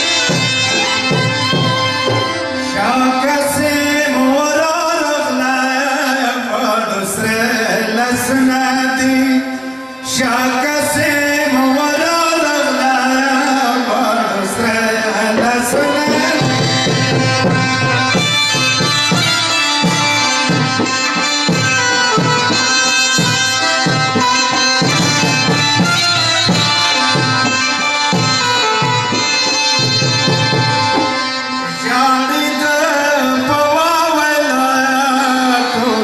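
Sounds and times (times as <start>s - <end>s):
clarinets and harmonium melody: 0.0s - 36.0s
barrel drums beating: 15.4s - 31.1s.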